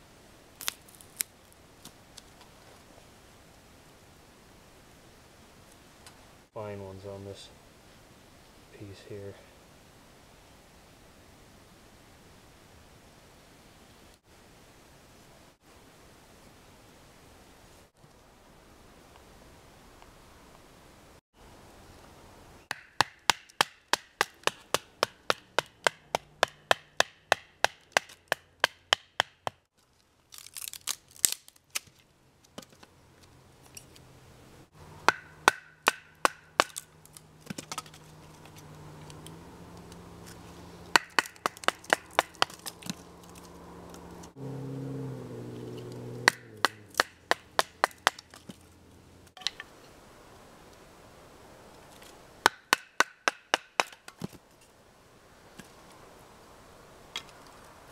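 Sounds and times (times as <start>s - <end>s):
wood splitting into kindling: 40.9s - 43.4s.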